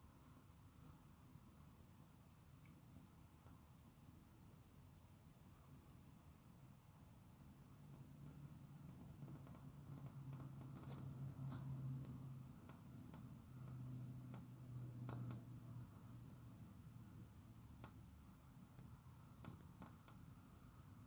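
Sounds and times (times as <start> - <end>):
faint light clicks: 7.8 - 15.5.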